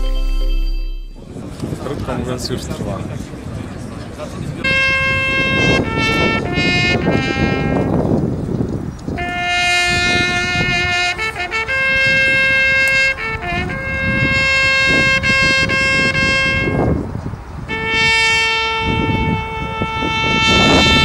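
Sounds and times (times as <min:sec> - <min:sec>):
solo trumpet call: 0:04.6 - 0:08.0, 0:09.2 - 0:17.1, 0:17.7 - 0:21.0.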